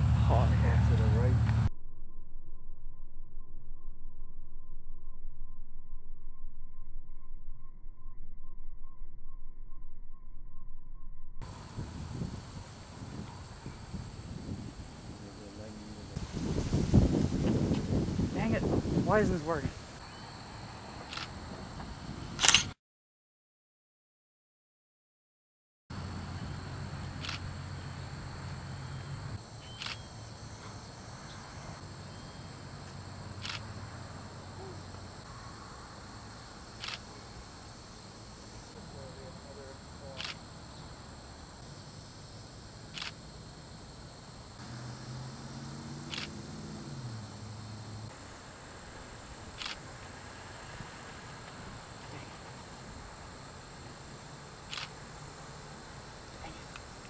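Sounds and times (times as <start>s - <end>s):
faint outdoor ambience: 0.0s - 1.7s, 11.4s - 22.8s, 25.9s - 57.0s
insect chirring: 5.6s - 22.2s, 25.9s - 57.0s
crickets trilling: 11.4s - 22.5s, 25.9s - 57.0s
camera shutter clicking: 21.1s - 21.3s, 22.4s - 22.7s, 27.2s - 27.4s, 29.7s - 30.0s, 33.4s - 33.6s, 36.8s - 37.0s, 40.2s - 40.4s, 42.9s - 43.2s, 46.1s - 46.3s, 49.6s - 49.8s, 54.7s - 54.9s
short sharp clicks: 22.4s - 22.8s.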